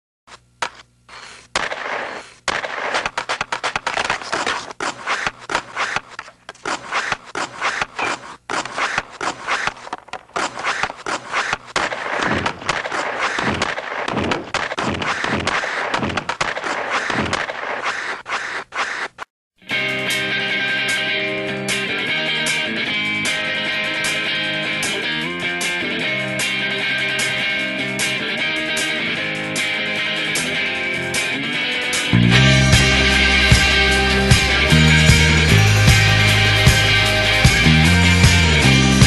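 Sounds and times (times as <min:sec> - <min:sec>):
hockey stick tapping puck: 0:00.6 - 0:00.9, 0:01.6 - 0:19.1
skates scraping ice: 0:00.6 - 0:19.3.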